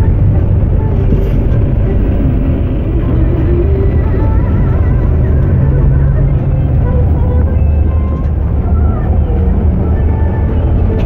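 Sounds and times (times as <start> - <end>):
bus engine and tyres rumbling: 0.0 - 11.0.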